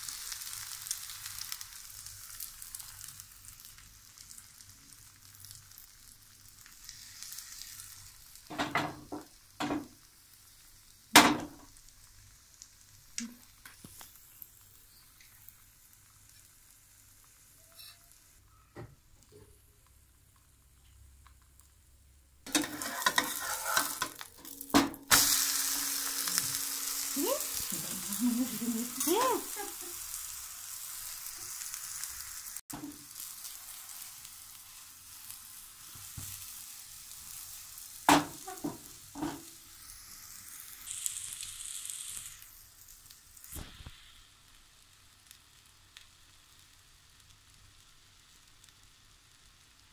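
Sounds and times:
egg sizzling in oil: 0:00.0 - 0:49.9
spatula scraping a pan: 0:22.5 - 0:28.1.

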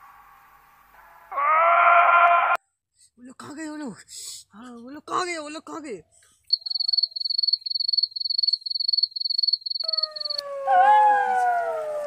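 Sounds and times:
cricket chirping: 0:06.5 - 0:10.5
long falling wail: 0:10.0 - 0:12.0.

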